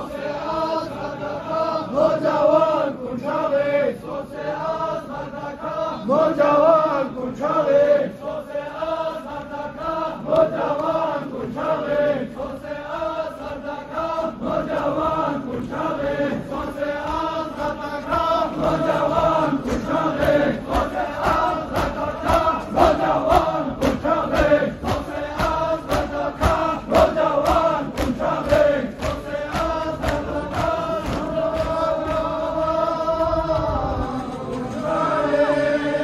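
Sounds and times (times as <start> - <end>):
crowd of men chanting: 0.0 - 36.0
regular sharp beats: 15.9 - 33.0.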